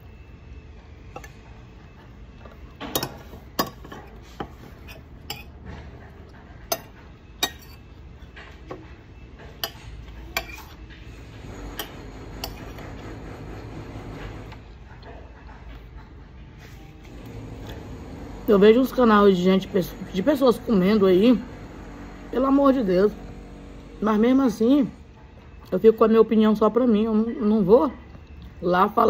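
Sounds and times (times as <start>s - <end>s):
cutlery clinking on a plate: 6.7s - 8.8s, 9.4s - 10.8s.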